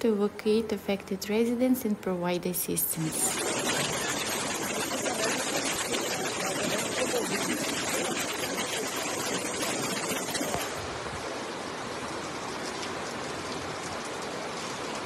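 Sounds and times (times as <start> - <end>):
heavy rain on flooded street: 3.1 - 15.0
rushing floodwater: 3.1 - 15.0.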